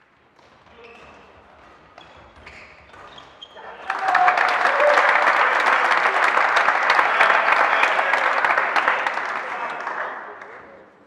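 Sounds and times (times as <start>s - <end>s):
spectators applauding: 3.6s - 10.8s.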